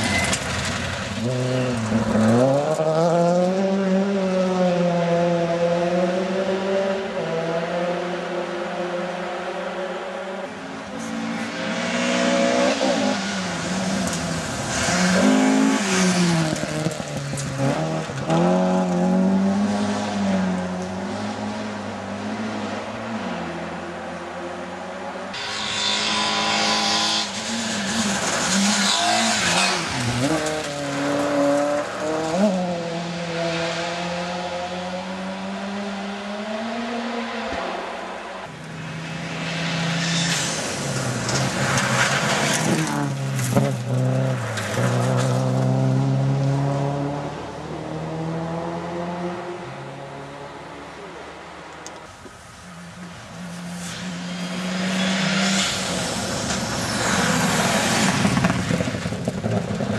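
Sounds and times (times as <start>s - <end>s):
rally car engine revving: 0.0s - 23.8s, 25.3s - 52.1s
harsh rushing noise: 36.7s - 45.8s, 53.5s - 59.9s.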